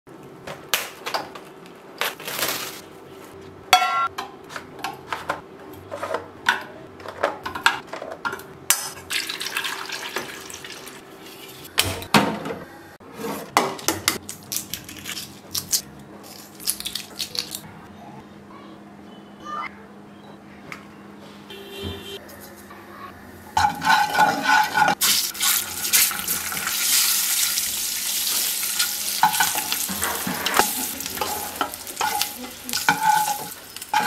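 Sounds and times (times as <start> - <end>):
eggshells cracking while peeled: 14.2 - 17.7.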